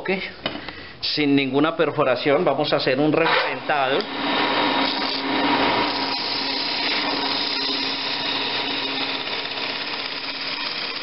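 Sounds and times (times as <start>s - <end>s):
chisel scraping spinning wood: 3.2s - 11.0s
wood lathe motor hum: 3.6s - 11.0s.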